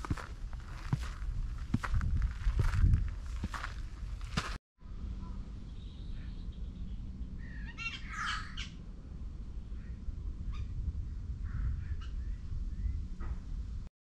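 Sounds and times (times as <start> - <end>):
steady low rumble: 0.0 - 7.7, 8.4 - 13.9
bird squawking: 7.4 - 8.8.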